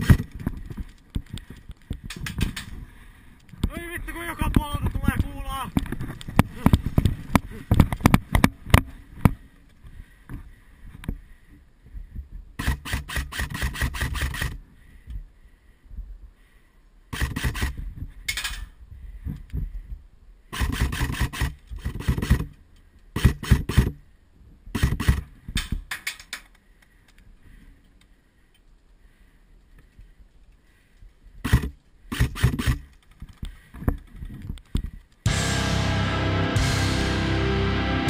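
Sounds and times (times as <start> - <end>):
airsoft gun firing bursts: 12.6 - 14.6, 17.1 - 17.8, 20.5 - 22.5, 23.2 - 24.0, 24.7 - 25.3, 31.4 - 33.0.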